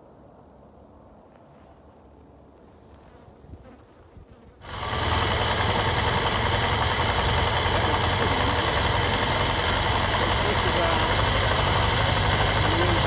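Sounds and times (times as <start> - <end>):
motorcycle engine running: 4.6 - 13.0.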